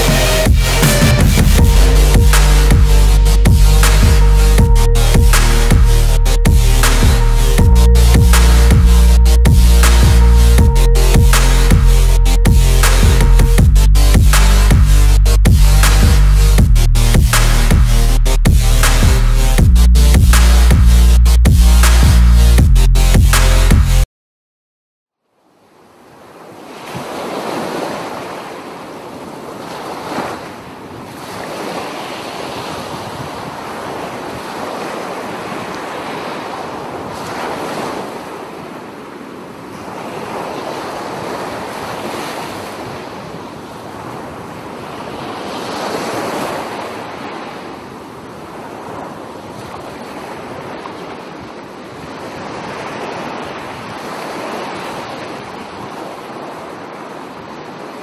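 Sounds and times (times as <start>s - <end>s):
surf breaking on beach: 26.4s - 47.9s.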